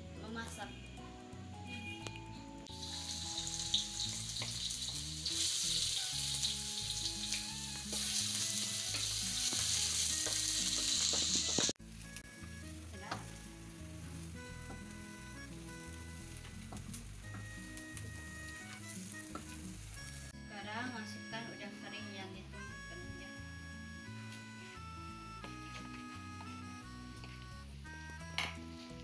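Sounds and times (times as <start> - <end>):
food sizzling in hot oil: 2.7 - 20.4.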